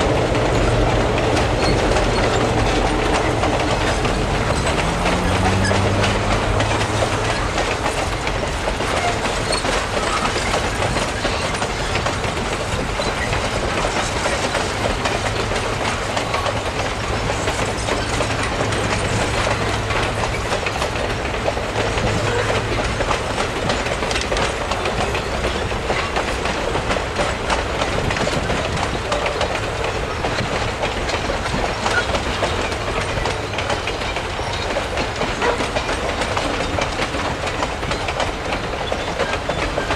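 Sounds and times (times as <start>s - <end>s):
train wheels clicking over rail joints: 0.0s - 39.9s.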